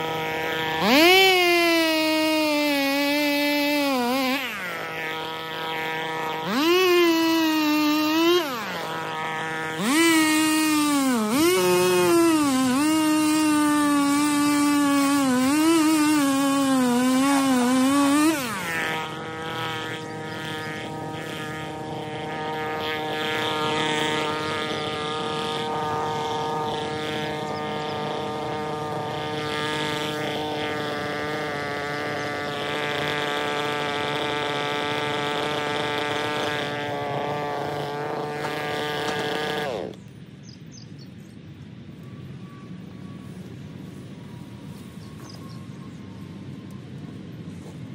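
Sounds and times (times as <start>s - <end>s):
chainsaw cutting wood: 0.0s - 40.2s.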